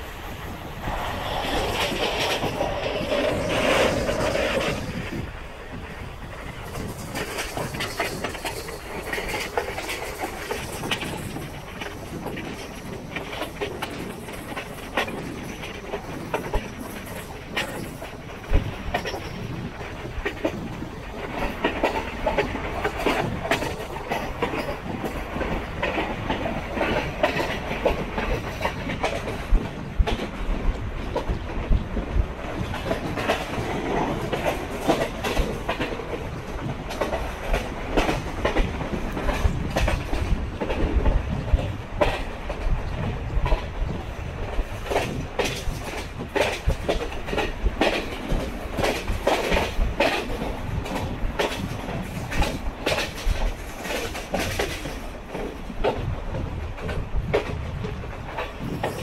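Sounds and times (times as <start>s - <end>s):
train rolling rumble: 0.0s - 59.0s
wheels clacking over rail joints: 0.0s - 59.0s.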